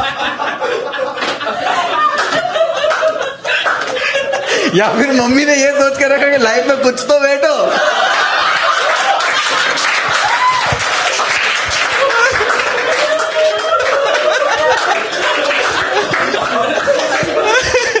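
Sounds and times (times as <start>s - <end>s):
audience laughing: 0.0s - 5.2s, 7.4s - 10.2s, 11.0s - 18.0s
scattered clapping: 2.1s - 4.3s, 8.2s - 18.0s.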